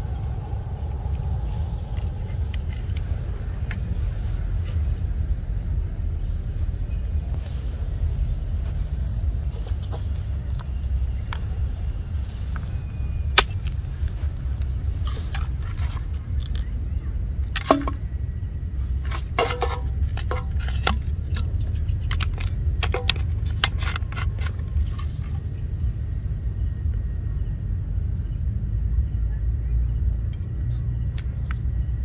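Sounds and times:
steady low rumble: 0.0s - 32.0s
plastic bottles clicking: 19.1s - 24.5s.

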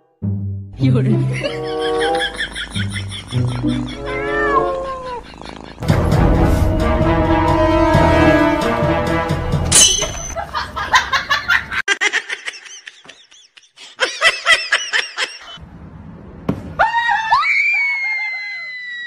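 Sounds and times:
cackling laughter: 1.3s - 5.8s, 10.4s - 15.6s.

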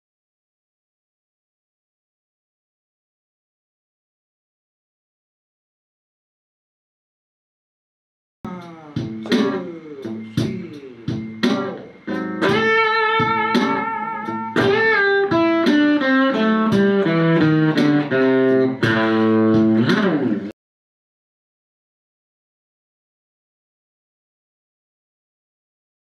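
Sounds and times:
blues electric guitar lead: 8.5s - 20.5s.

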